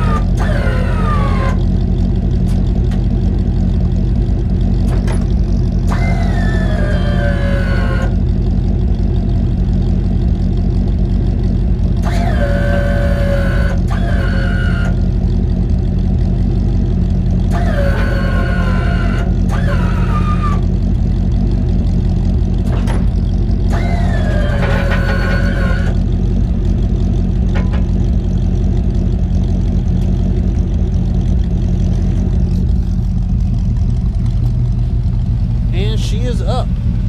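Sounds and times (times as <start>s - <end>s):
hydraulic pump motor whining: 0.0s - 1.7s, 4.9s - 8.2s, 12.0s - 15.1s, 17.5s - 20.8s, 22.5s - 26.1s
engine idling: 0.0s - 37.0s.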